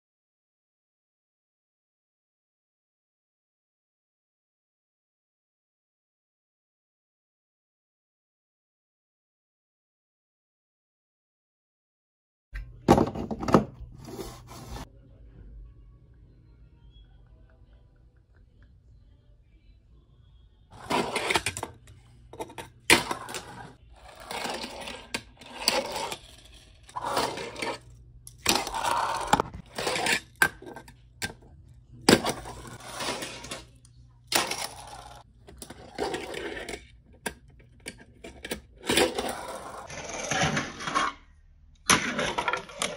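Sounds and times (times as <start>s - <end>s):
small wheels rolling on ramp: 22.4s - 30.7s.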